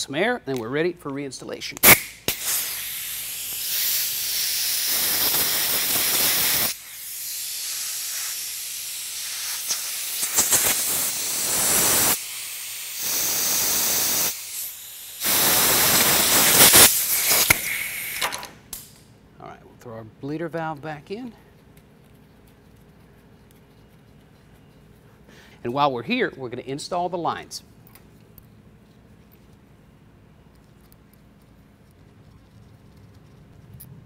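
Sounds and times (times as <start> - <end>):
compressed air blow gun hissing: 1.8 - 18.3.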